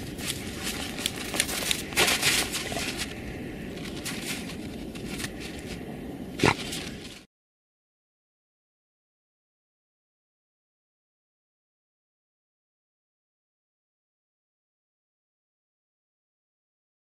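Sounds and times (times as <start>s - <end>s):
paws scraping snow: 0.0s - 7.3s.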